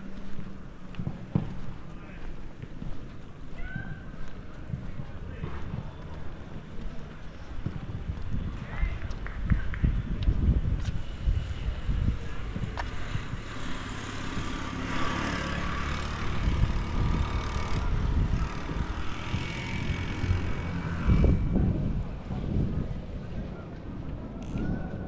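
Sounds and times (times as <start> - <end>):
low rumbles: 14.2 - 25.0.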